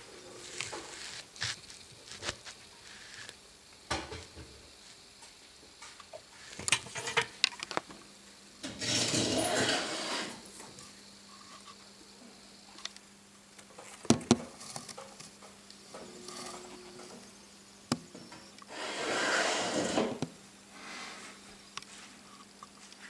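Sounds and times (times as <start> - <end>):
rustling hiss: 0.0 - 7.9, 18.4 - 23.0.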